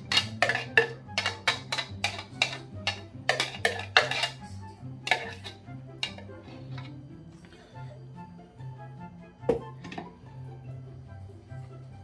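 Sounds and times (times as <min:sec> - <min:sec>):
metal spoon scraping plastic bowl: 0:00.0 - 0:07.0
background music with bass line: 0:00.0 - 0:12.0.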